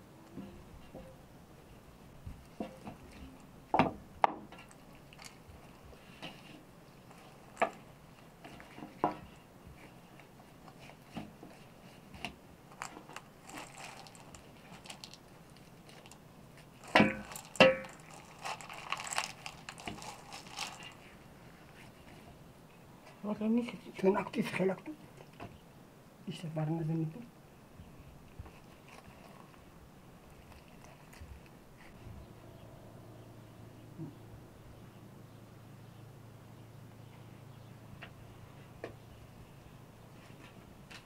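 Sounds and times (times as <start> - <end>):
joints crunching and clicking: 12.7 - 16.2, 16.8 - 21.1.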